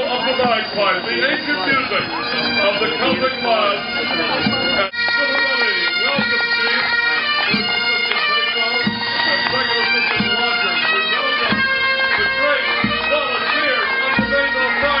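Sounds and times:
bagpipes playing: 0:00.0 - 0:15.0
bass drum beating: 0:08.8 - 0:10.5, 0:11.4 - 0:13.5.

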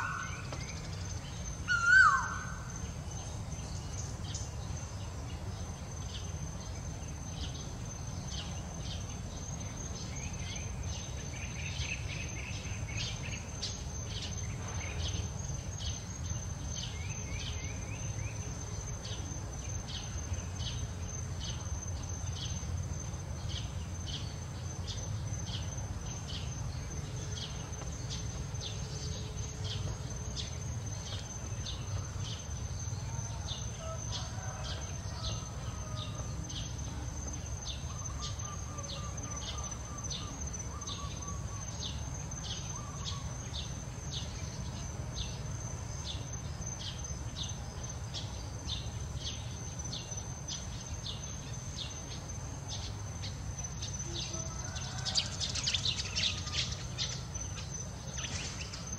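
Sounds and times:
faint bird calls: 0:00.0 - 0:04.5, 0:27.4 - 0:43.8
insect chirping: 0:00.0 - 0:58.9
insects whining: 0:00.0 - 0:58.9.

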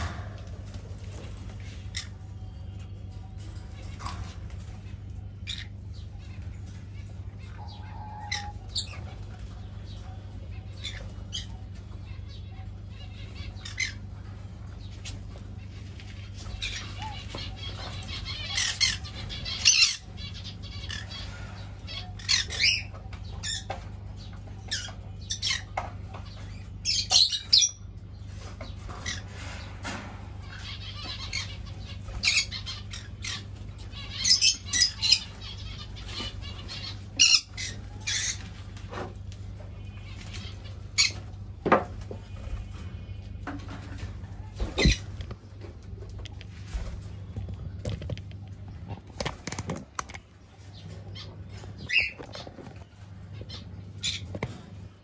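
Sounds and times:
low hum: 0:00.0 - 0:26.9
parrots squawking and chirping: 0:00.0 - 0:55.0.

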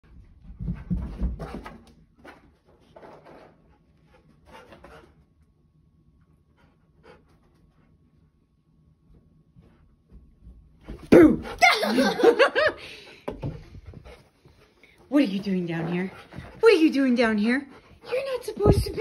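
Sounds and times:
dog panting: 0:04.0 - 0:05.3, 0:06.4 - 0:08.0, 0:13.7 - 0:19.0.

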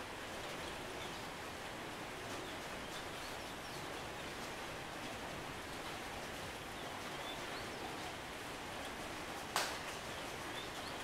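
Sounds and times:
light rain on foliage: 0:00.0 - 0:11.0
small birds chirping: 0:10.0 - 0:11.0.

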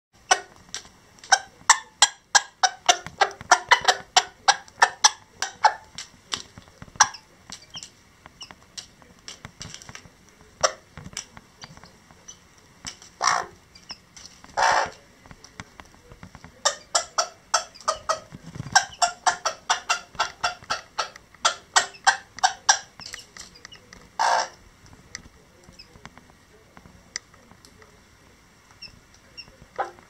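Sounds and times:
hen clucking: 0:00.2 - 0:09.9, 0:10.6 - 0:15.1, 0:16.6 - 0:24.6, 0:28.7 - 0:30.0.

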